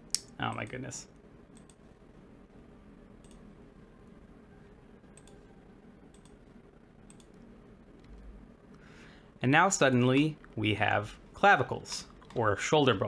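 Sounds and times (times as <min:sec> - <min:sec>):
computer mouse clicks: 0:01.5 - 0:01.8, 0:03.2 - 0:03.5, 0:05.1 - 0:05.5, 0:06.1 - 0:08.8.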